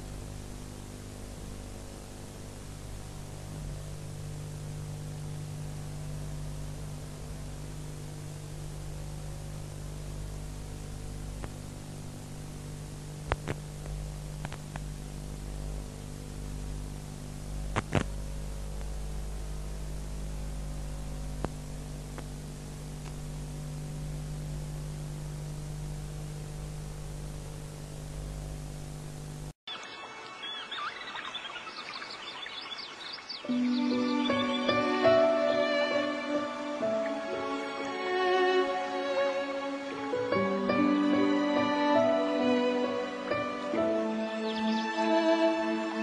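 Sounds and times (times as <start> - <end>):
electrical hum and hiss: 0.0 - 29.6, 30.2 - 46.0
sharp clicks and pops: 13.2 - 14.9, 17.7 - 18.2, 21.4 - 22.4, 23.0 - 23.2.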